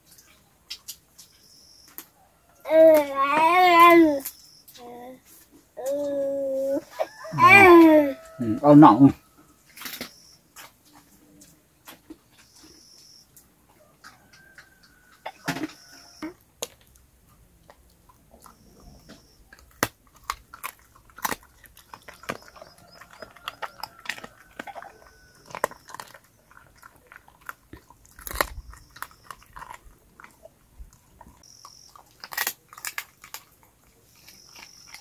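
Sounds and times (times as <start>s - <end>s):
dog crunching food: 13.4s - 35.0s.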